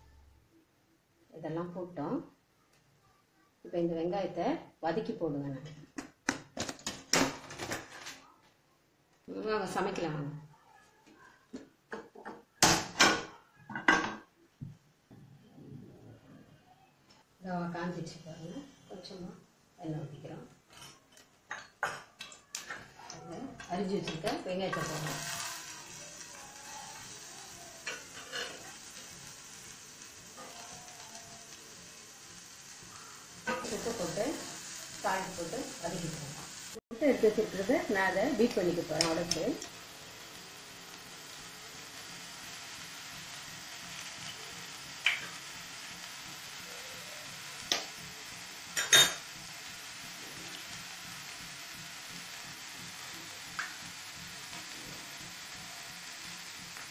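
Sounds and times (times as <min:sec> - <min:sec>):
onions sizzling in frying pan: 0:09.4 - 0:10.4, 0:17.5 - 0:56.9.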